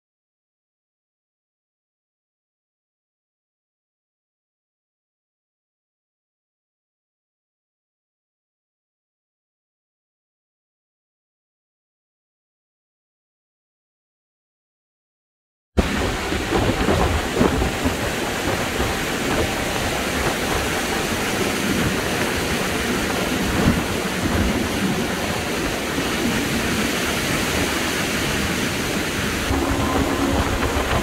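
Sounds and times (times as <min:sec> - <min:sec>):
low boat engine drone: 0:15.8 - 0:31.0
wind and water rushing: 0:15.8 - 0:31.0.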